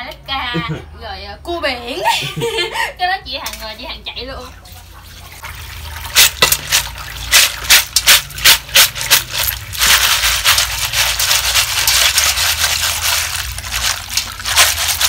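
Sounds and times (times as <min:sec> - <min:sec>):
tap water pouring: 0:04.6 - 0:15.0
snail shells clattering: 0:06.1 - 0:15.0.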